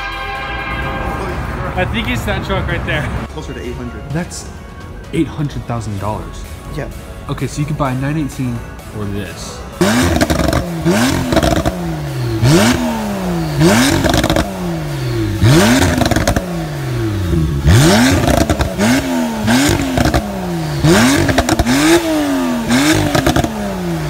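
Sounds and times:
car engine revving: 9.7s - 24.0s
exhaust crackles and pops: 13.7s - 14.5s, 15.5s - 16.5s, 20.9s - 22.0s, 22.7s - 23.6s.

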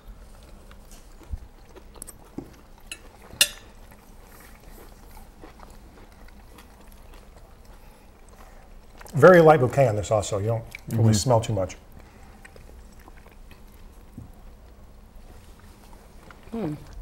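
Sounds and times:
quiet chewing: 0.0s - 17.0s
cutlery clicking on plates: 2.9s - 3.7s.

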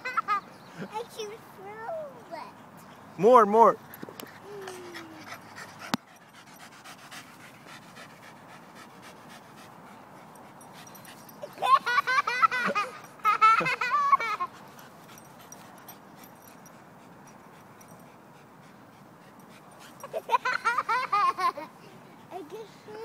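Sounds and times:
toddler giggling: 4.4s - 5.5s, 11.4s - 14.6s, 20.0s - 23.0s.

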